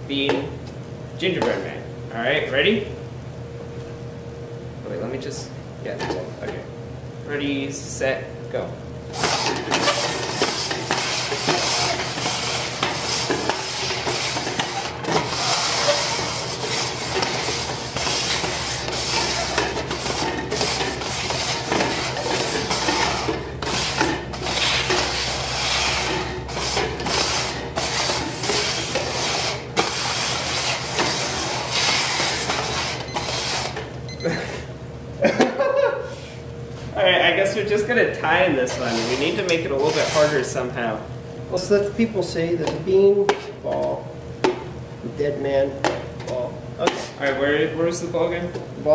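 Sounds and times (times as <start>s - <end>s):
plastic cups scraping on wood: 9.2s - 33.9s, 38.6s - 40.5s.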